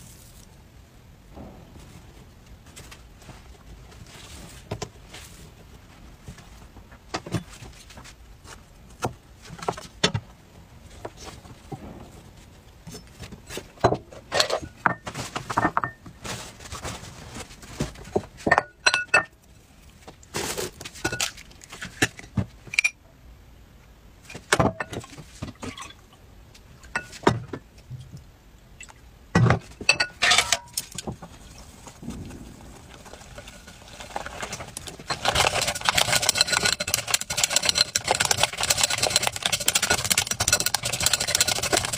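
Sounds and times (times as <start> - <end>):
dishes clicking and clinking: 18.5 - 19.3
egg breaking: 32.0 - 41.9
whisk beating batter in glass bowl: 35.1 - 41.9.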